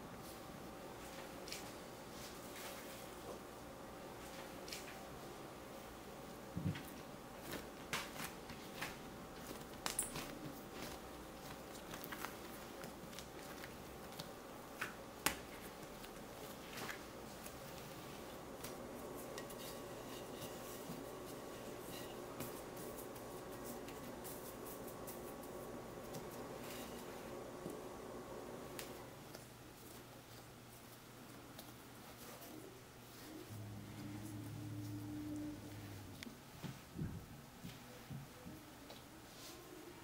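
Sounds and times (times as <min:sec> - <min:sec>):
faint steady hum: 0:00.0 - 0:40.0
bread dough kneaded by hand: 0:06.3 - 0:35.4.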